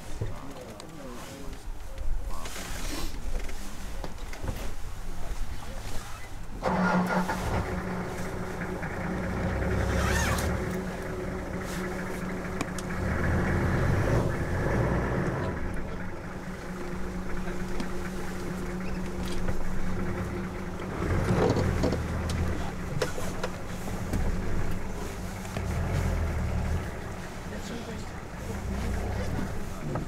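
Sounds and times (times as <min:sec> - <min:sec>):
vehicle engine idling: 0:03.1 - 0:30.0.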